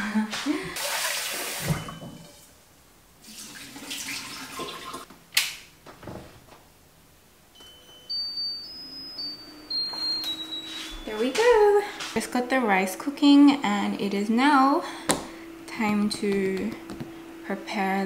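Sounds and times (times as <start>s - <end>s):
tap water running into a pot: 0.8s - 2.0s, 3.2s - 5.0s
high electronic beeps: 7.6s - 11.6s.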